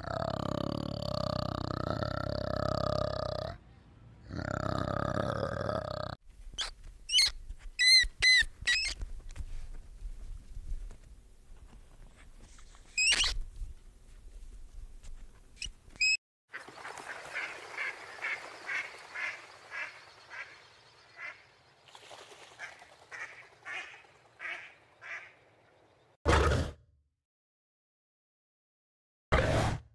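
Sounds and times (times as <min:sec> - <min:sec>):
sharp high squeaks: 0:06.6 - 0:09.0, 0:13.0 - 0:13.4
duck quacking: 0:16.5 - 0:20.6, 0:21.2 - 0:21.4, 0:22.6 - 0:25.4.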